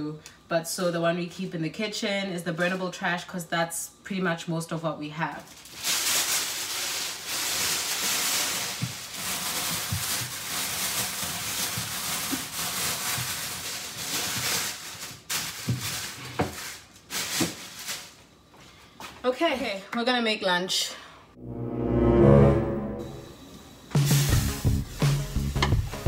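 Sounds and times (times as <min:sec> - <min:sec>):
plastic bag rustling and crinkling: 0:05.3 - 0:18.3.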